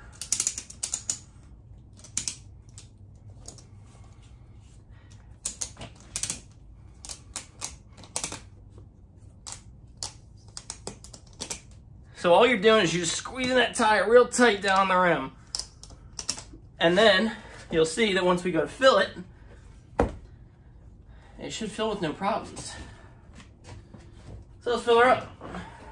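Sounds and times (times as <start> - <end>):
ratchet strap buckle clicking: 0.1 - 3.7, 5.1 - 8.5.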